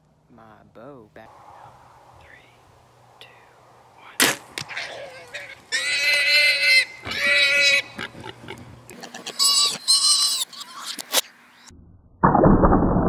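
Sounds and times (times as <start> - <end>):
hog squealing: 4.6 - 8.0, 9.4 - 11.2.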